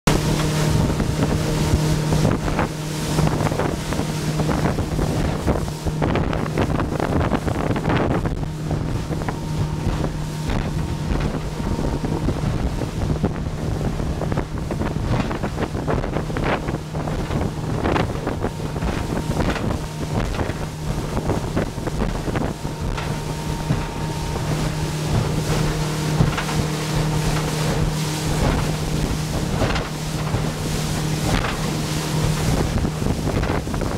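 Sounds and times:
motorboat engine running: 0:00.0 - 0:33.9
water rushing past hull: 0:00.0 - 0:33.9
wind on microphone: 0:00.1 - 0:33.9
hull slapping the chop: 0:17.2 - 0:33.8.

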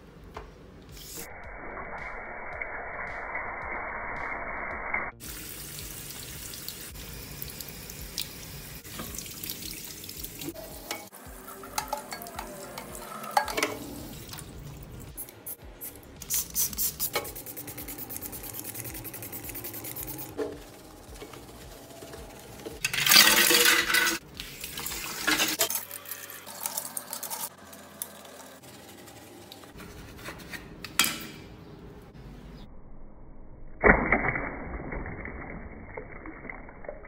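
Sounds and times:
tap water running into a basin: 0:05.2 - 0:14.6.

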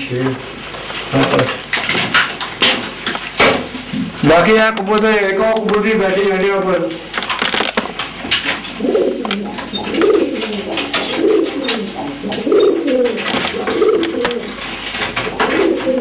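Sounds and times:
pigeons cooing: 0:08.3 - 0:16.0.

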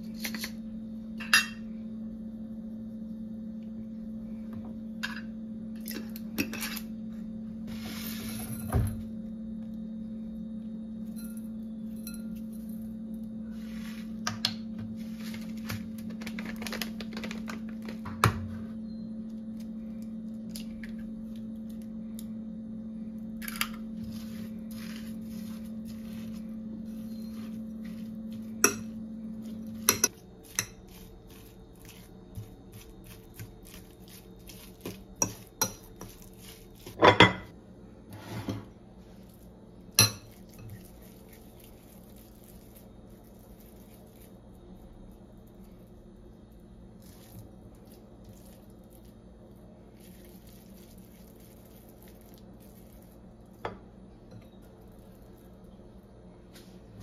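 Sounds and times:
steady hum: 0:00.0 - 0:57.0.

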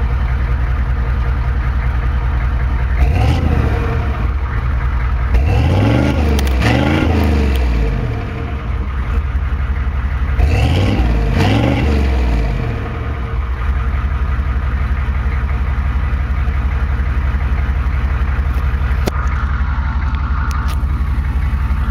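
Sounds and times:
diesel engine revving and idling: 0:00.0 - 0:21.9.

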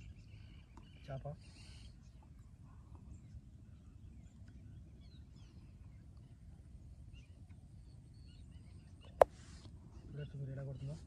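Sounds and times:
distant bird chirps: 0:00.0 - 0:11.0.

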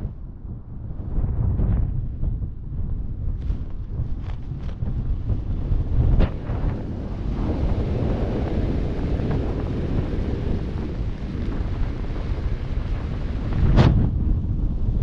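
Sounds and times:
wind rushing over microphone: 0:00.0 - 0:15.0.

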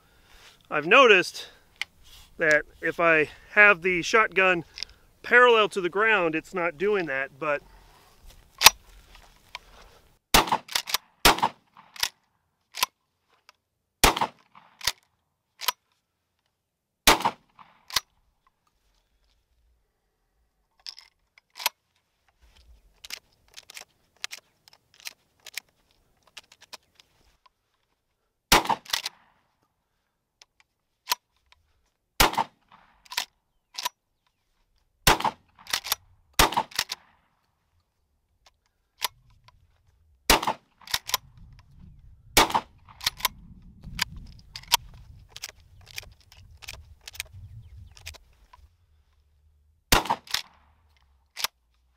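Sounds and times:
shotgun shots: 0:10.3 - 0:12.0, 0:14.0 - 0:14.8, 0:17.1 - 0:17.8, 0:28.5 - 0:29.3, 0:32.2 - 0:32.9, 0:35.0 - 0:37.1, 0:40.3 - 0:41.2, 0:42.4 - 0:43.2, 0:49.9 - 0:50.6
shells clicking into magazine: 0:10.6 - 0:11.0, 0:11.9 - 0:13.0, 0:14.6 - 0:15.8, 0:20.8 - 0:21.8, 0:23.0 - 0:27.1, 0:32.7 - 0:34.0, 0:35.2 - 0:37.1, 0:40.8 - 0:41.6, 0:42.5 - 0:43.4, 0:44.0 - 0:48.6, 0:50.0 - 0:51.8
shotgun pump racking: 0:35.6 - 0:37.1, 0:40.8 - 0:41.7, 0:42.4 - 0:48.6, 0:50.0 - 0:51.6.

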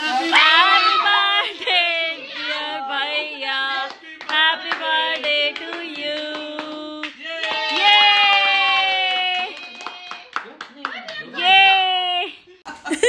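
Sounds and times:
high voices singing: 0:00.0 - 0:07.3
hand claps: 0:03.9 - 0:11.3.

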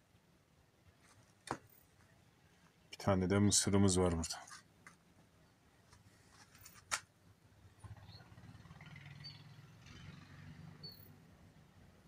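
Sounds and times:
faint high bird chirps: 0:07.9 - 0:09.7, 0:10.8 - 0:11.2.

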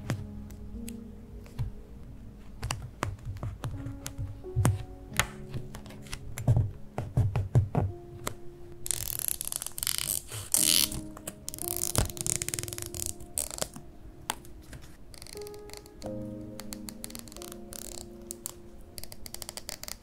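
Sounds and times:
soft background music: 0:00.0 - 0:20.0
scissors cutting paper: 0:08.9 - 0:13.8, 0:15.3 - 0:20.0.

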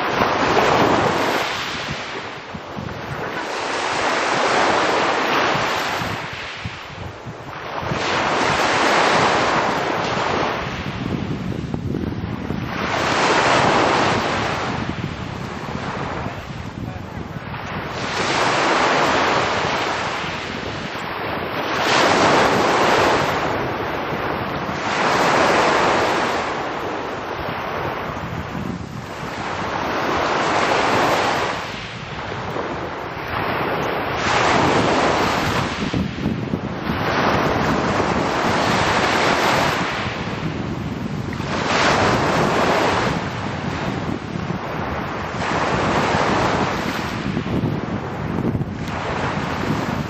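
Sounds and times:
waves breaking on pebble shore: 0:00.0 - 0:50.0
wind rumbling on microphone: 0:00.0 - 0:50.0.

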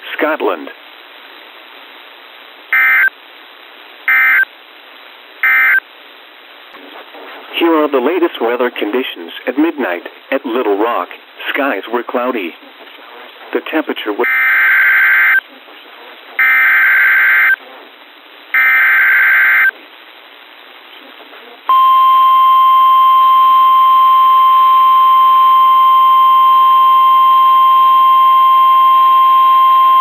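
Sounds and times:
data burst tones: 0:02.7 - 0:03.1, 0:04.1 - 0:04.5, 0:05.4 - 0:05.8, 0:21.7 - 0:30.0
steady alarm tone: 0:02.8 - 0:03.1, 0:04.1 - 0:04.4, 0:05.4 - 0:05.8, 0:21.7 - 0:30.0.

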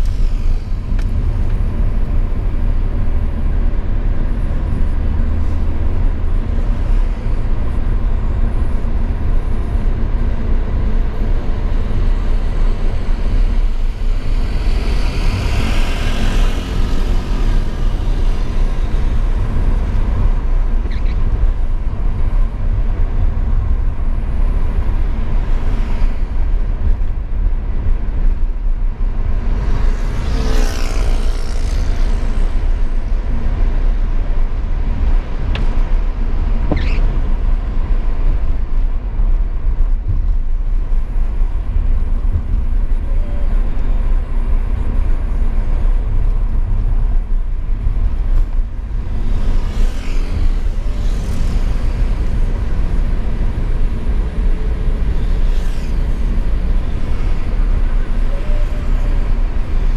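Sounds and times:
road and engine rumble: 0:00.0 - 0:59.9
vehicles passing: 0:00.0 - 0:59.9.

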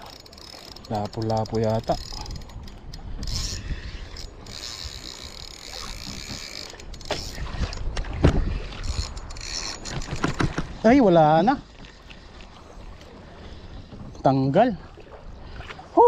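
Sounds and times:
fishing reel gears whirring: 0:00.0 - 0:07.9, 0:08.6 - 0:10.2
low wind: 0:00.0 - 0:16.0
water rumble: 0:00.0 - 0:16.0.

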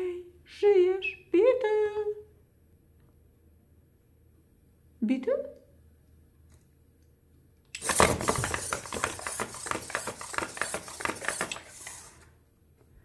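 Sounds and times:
plastic legs tapping on table: 0:07.8 - 0:12.2
robot servos buzzing: 0:07.8 - 0:12.2.

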